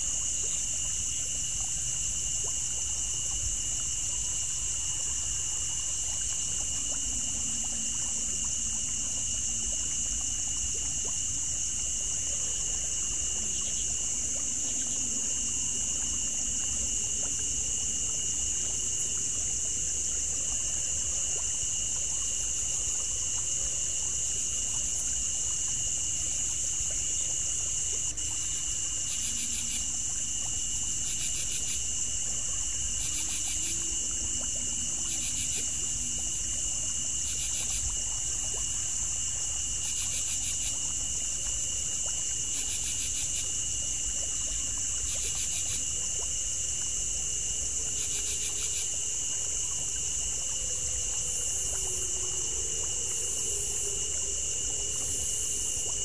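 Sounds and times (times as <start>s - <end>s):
trickle of water: 0.0s - 56.0s
insect chorus shrill trills: 26.1s - 39.0s, 50.4s - 56.0s.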